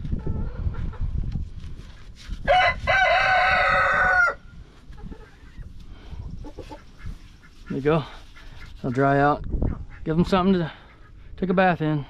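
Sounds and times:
rooster crowing: 2.5s - 4.4s.

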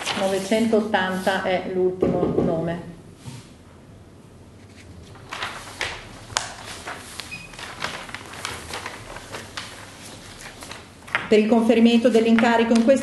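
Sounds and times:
paper sheets rustling: 0.0s - 1.6s, 4.6s - 13.0s.

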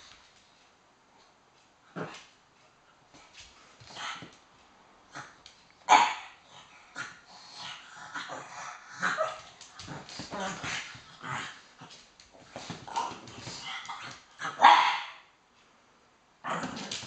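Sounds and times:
dogs barking: 14.4s - 15.2s.

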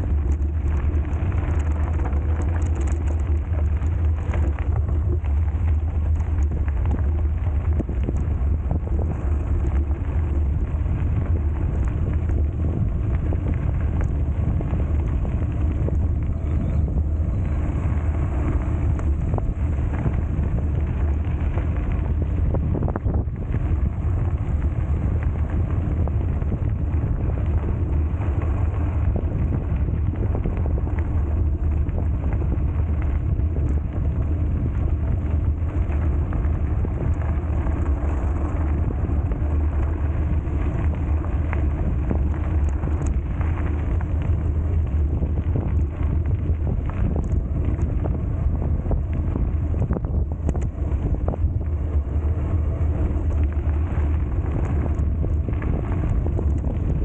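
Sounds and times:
wind rush on microphone: 0.0s - 57.0s.

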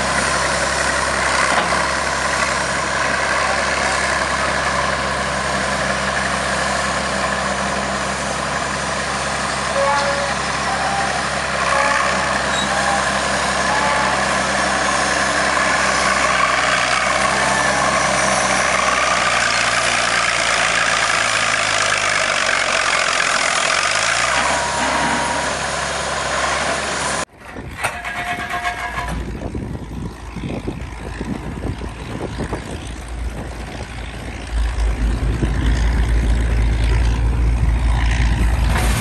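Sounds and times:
tractor engine idling: 0.0s - 39.0s.

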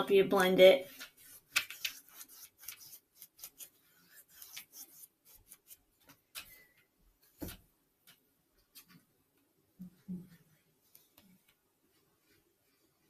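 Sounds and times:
paintbrush brushing on paper: 0.8s - 6.1s.

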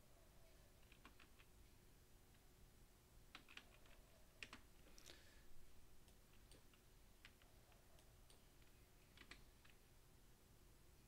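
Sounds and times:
faint keyboard typing: 0.7s - 1.6s, 3.2s - 5.3s, 6.0s - 9.9s.

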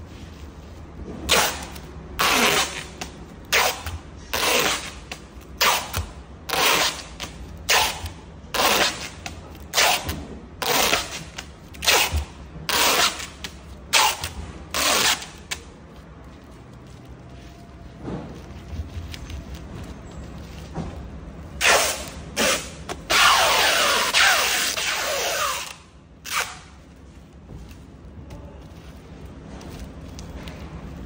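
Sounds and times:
packing tape screeching off roll: 1.3s - 15.7s, 21.5s - 26.8s.

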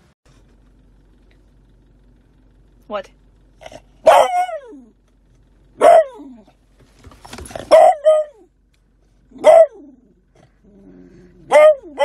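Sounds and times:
puppy baying: 3.6s - 4.9s, 5.8s - 6.6s, 7.4s - 8.5s, 9.3s - 12.0s.

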